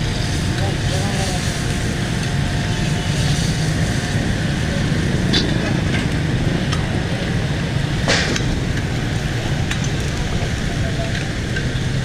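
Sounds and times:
low rumble of traffic and burner: 0:00.0 - 0:12.0.

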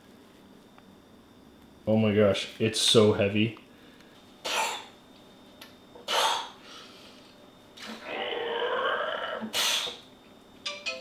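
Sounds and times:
man groaning: 0:07.9 - 0:09.5.

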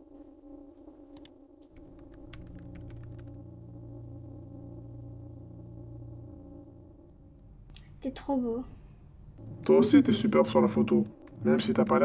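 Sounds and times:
low synthesizer drone: 0:00.0 - 0:12.0.

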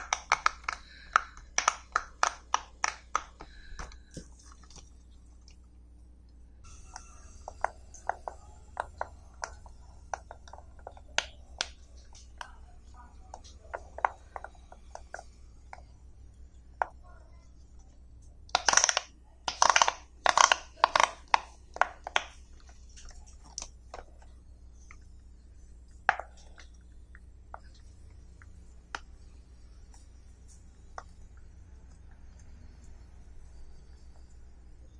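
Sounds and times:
fidget toy bubbles popping: 0:00.0 - 0:04.2, 0:18.5 - 0:25.1.

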